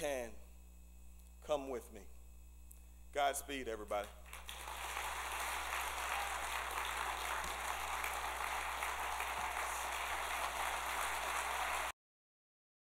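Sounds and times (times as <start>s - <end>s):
audience applauding: 4.2s - 11.9s.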